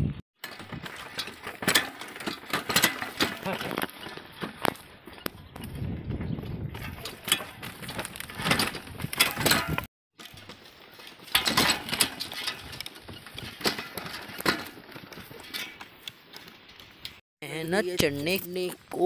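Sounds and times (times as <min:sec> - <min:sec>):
wooden cart knocking and rattling: 0:00.4 - 0:15.9.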